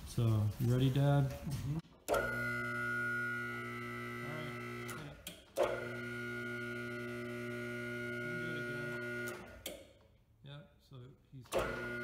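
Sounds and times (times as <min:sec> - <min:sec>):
hydraulic motor humming: 0:02.0 - 0:09.8, 0:11.5 - 0:12.0.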